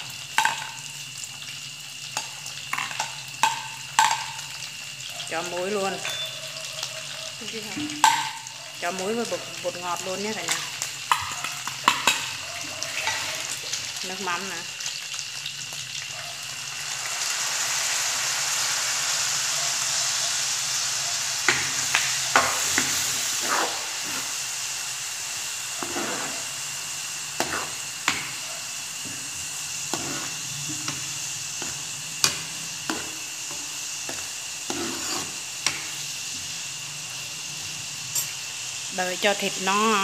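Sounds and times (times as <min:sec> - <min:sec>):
food sizzling in hot oil: 0:00.0 - 0:40.0
metal ladle scraping a pan: 0:22.3 - 0:24.5, 0:25.8 - 0:26.7, 0:27.4 - 0:28.4, 0:29.0 - 0:36.1.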